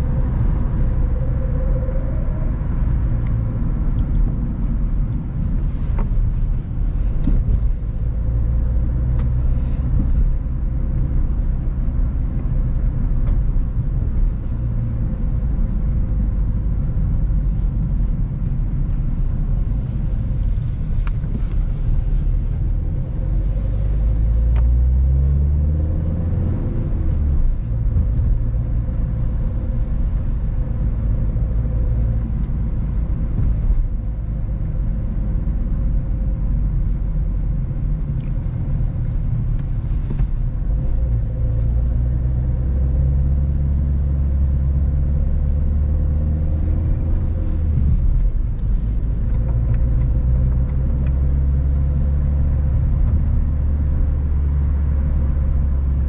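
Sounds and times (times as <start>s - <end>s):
car engine accelerating: 0.0s - 56.0s
road rumble: 0.0s - 56.0s.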